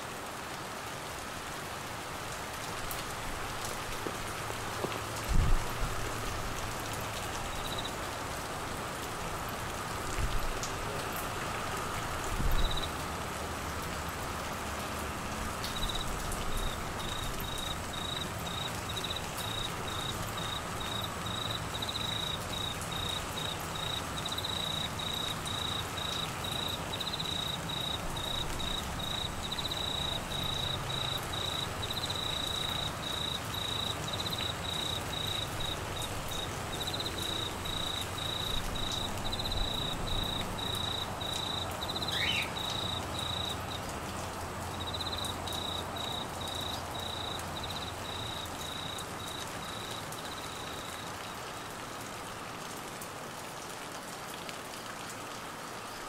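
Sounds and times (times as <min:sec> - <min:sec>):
heavy rain on foliage: 0:00.0 - 0:56.0
cricket trilling: 0:15.7 - 0:43.9, 0:44.8 - 0:51.0.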